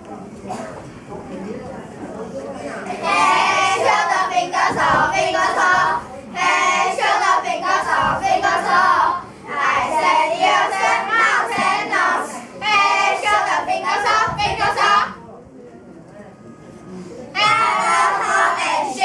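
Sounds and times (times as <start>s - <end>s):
children singing in unison: 2.9s - 15.2s, 17.4s - 19.0s.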